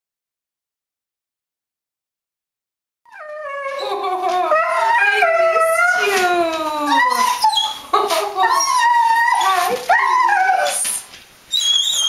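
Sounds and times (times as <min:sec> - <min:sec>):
dogs whining and howling: 0:03.1 - 0:12.0.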